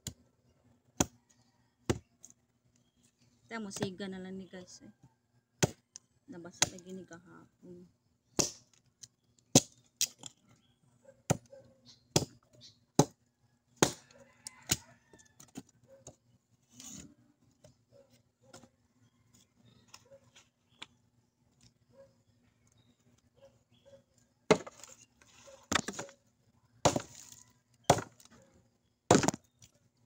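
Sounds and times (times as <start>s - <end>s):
blade chopping wood: 5.6s - 5.8s, 8.4s - 8.7s, 13.8s - 14.1s, 24.5s - 24.9s, 25.7s - 26.1s, 26.8s - 28.3s, 29.1s - 29.5s.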